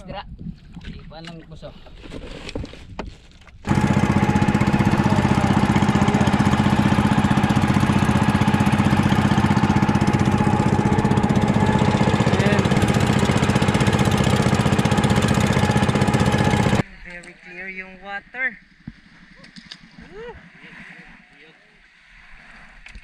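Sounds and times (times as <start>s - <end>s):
small boat engine running: 3.6s - 16.9s.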